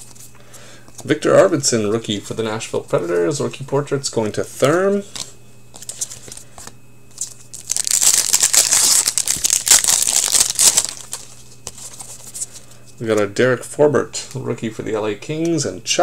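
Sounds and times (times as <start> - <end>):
cards rustling and ticking: 4.6 - 12.7
plastic wrapper crinkling: 5.8 - 12.2.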